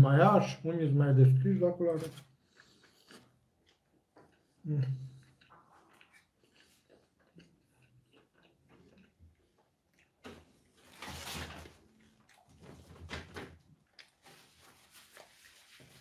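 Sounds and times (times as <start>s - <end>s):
paper napkins rustling: 1.9s - 2.3s, 14.2s - 16.0s.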